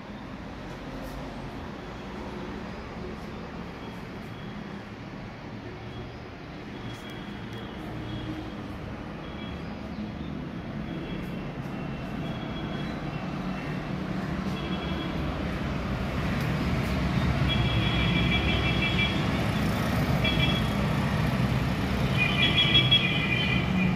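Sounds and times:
traffic engine rumble: 0.0 - 23.9
vehicle horn toots: 22.1 - 23.9.

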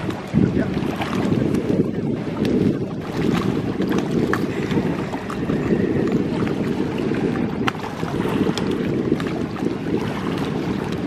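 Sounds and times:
water lapping at boat: 0.0 - 11.0
wind buffeting microphone: 0.0 - 11.0.

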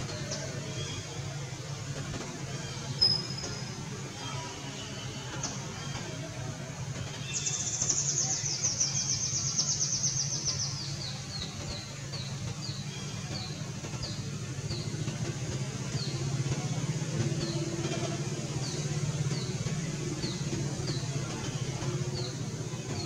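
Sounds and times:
bird singing trills and chirps: 2.6 - 4.8, 7.2 - 15.0.

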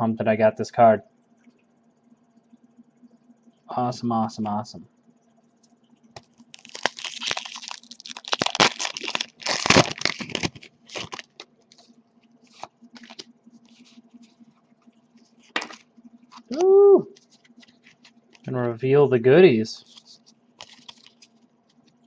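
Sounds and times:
cards clicking and rustling: 6.2 - 11.9, 12.5 - 13.8, 15.5 - 15.8, 19.9 - 22.0
foil wrapper tearing and crumpling: 6.4 - 11.8, 20.6 - 21.3.

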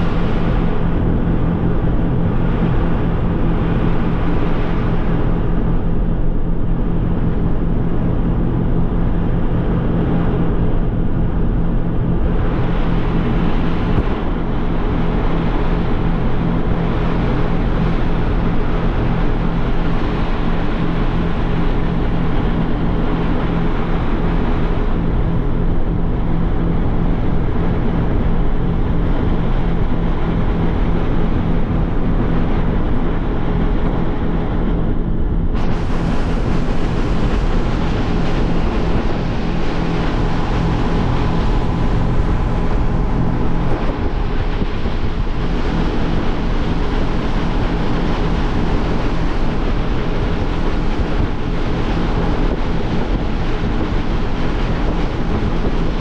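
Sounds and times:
motorboat engine hum: 0.0 - 56.0
water rushing along hull: 0.0 - 56.0
wind on microphone: 0.0 - 56.0.

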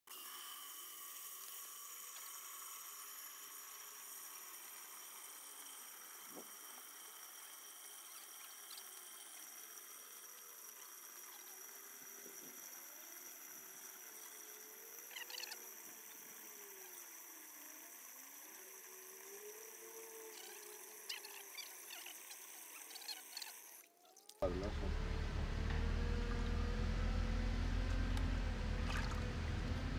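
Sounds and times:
hose water splashing into aquarium: 17.9 - 24.4, 28.7 - 29.3.

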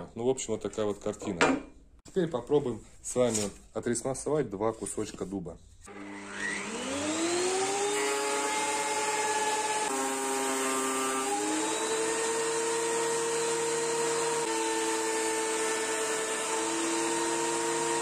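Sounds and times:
thickness planer whining: 5.9 - 18.0.

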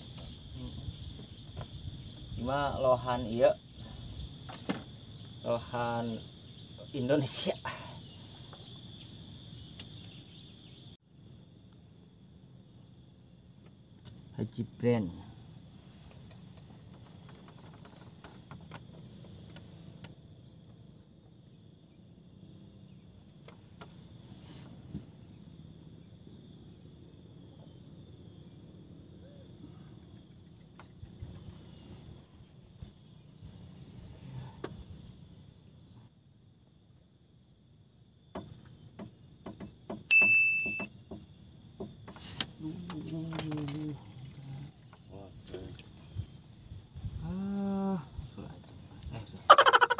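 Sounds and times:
faint high insect-like hum: 0.0 - 49.9
loud high beep: 40.1 - 40.9.

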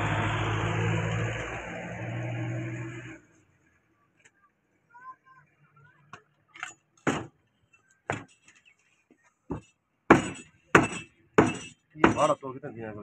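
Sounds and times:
cleaver chopping on wooden block: 10.1 - 12.2.

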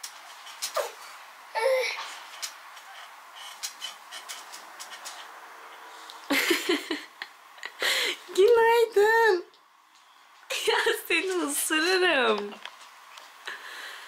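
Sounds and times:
light rustling and clicks: 2.0 - 5.4.

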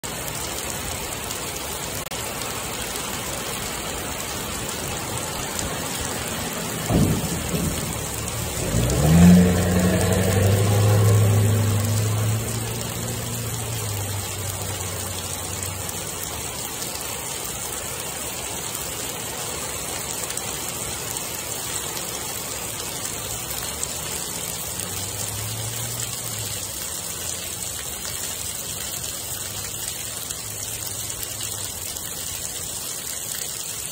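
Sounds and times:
heavy rain on pavement: 0.0 - 33.9
thunder crack and rumble: 5.4 - 14.2.

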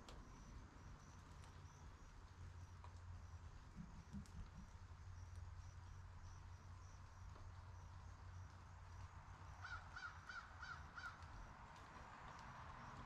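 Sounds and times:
bird calling: 9.6 - 11.4.

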